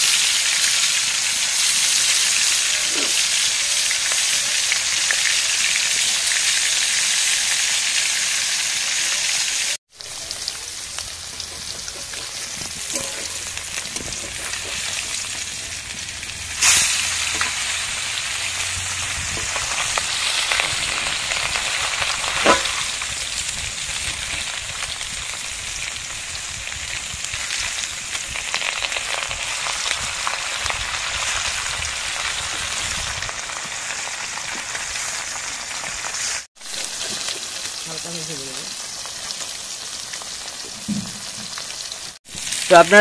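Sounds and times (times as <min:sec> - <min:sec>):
fish sizzling in oil: 0:00.0 - 0:43.0
metal spatula clanking on pan: 0:11.2 - 0:15.6, 0:22.4 - 0:22.8.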